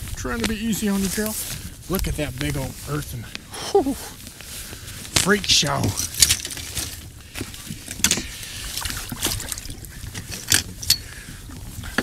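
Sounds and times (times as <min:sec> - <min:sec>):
fishing gear clattering: 0:05.1 - 0:12.0.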